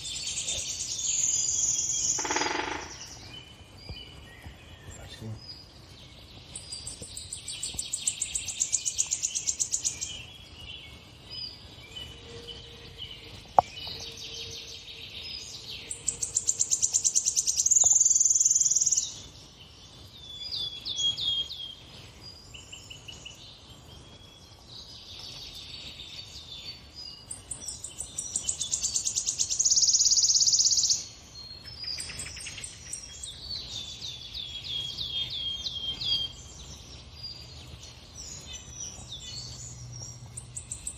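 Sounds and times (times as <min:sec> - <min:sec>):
songbird trilling: 0:00.0 - 0:03.5
bird chirping: 0:00.0 - 0:40.9.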